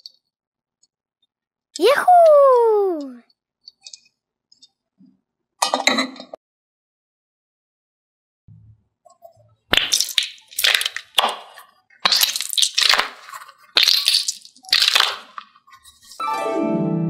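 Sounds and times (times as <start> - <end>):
stress ball squishing: 9.7 - 15.6.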